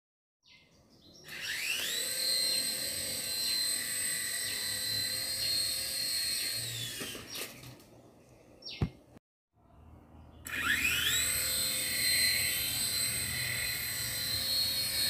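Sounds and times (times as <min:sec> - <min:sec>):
toy helicopter rotors whining: 0:01.2 - 0:07.8, 0:10.4 - 0:15.0.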